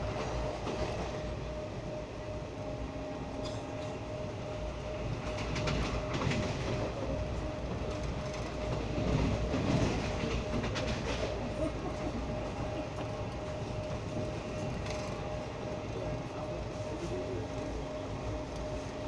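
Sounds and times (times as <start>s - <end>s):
train wheels rumbling on rails: 0.0s - 19.0s
wheels clicking over rail joints: 7.8s - 11.3s.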